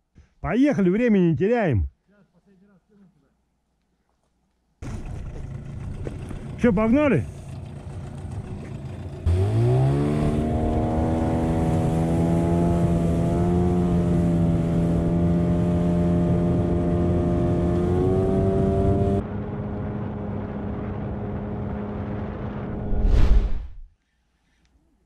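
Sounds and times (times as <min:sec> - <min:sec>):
outboard motor revving: 0:04.8 - 0:22.5.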